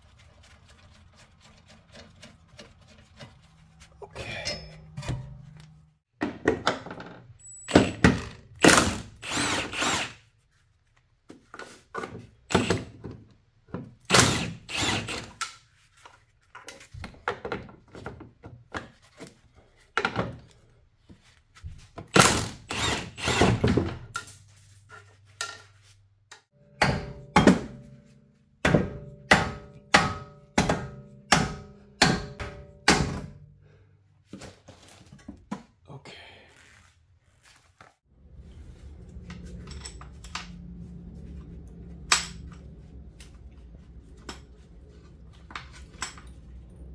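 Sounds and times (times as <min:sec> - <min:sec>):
regular metal strikes: 0:26.3 - 0:33.5.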